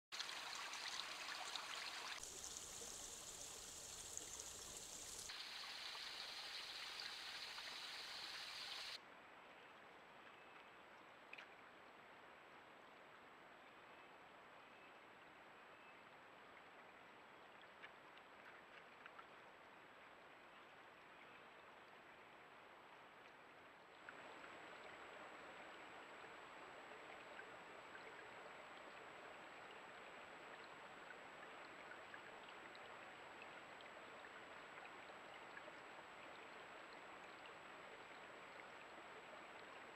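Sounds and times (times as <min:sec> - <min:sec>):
creek water rushing: 0:00.2 - 0:09.0.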